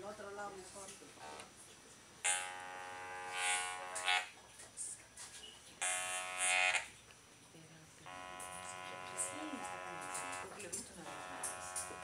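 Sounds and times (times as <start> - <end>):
electrolarynx buzzing: 2.2 - 4.3, 5.8 - 6.9, 8.0 - 12.0.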